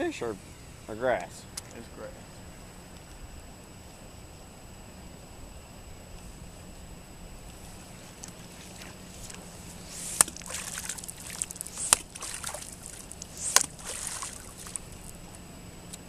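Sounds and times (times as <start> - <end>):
lure slapping water surface: 8.1 - 15.2
water splashing and dripping: 10.0 - 15.1.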